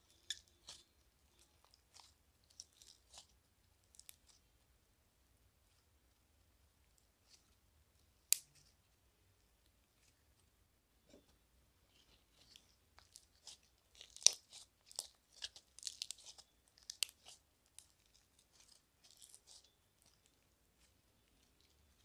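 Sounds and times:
slime crackling and popping: 0.3s - 4.4s, 12.4s - 22.0s.

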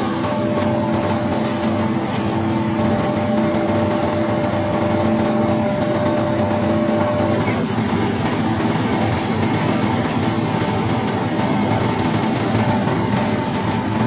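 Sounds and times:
recycling machine droning: 0.0s - 14.0s.

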